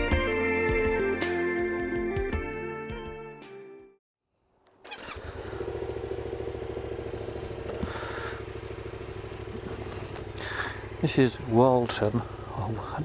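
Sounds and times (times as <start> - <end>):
music: 0.0 - 4.0
motorcycle engine running: 4.9 - 13.0.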